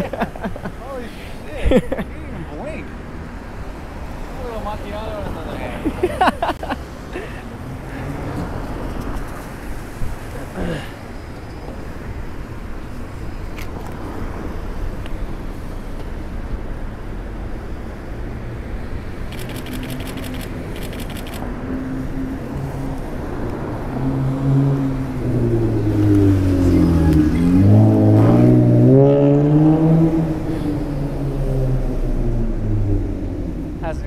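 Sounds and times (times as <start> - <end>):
passing cars: 0.0 - 34.0
rapid ticks: 19.3 - 21.4
car engine revving: 23.3 - 33.5.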